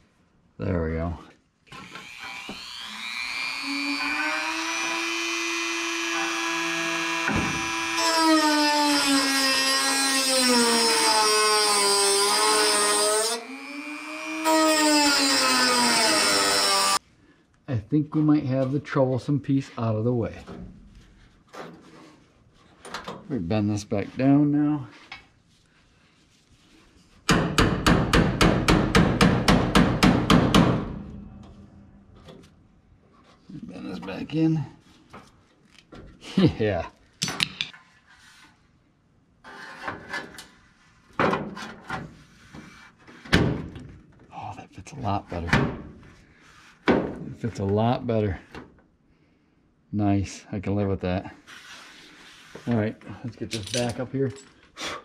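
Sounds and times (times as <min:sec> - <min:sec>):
rotary tool cutting sheet steel: 0:01.7 - 0:17.0
hammer striking sheet steel: 0:27.3 - 0:31.9.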